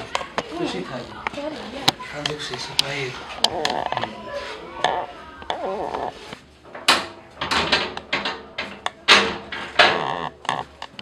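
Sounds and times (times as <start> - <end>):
metal window frame rattling and banging: 6.6 - 10.2.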